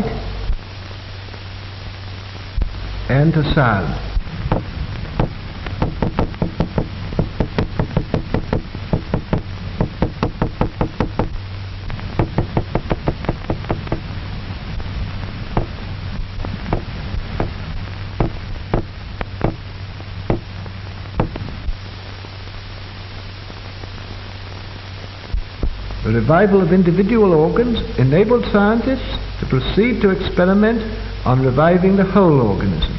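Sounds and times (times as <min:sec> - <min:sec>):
low hum and hiss: 0:00.0 - 0:32.9
small hammer knocking: 0:04.5 - 0:11.4, 0:12.2 - 0:14.0, 0:18.2 - 0:19.6.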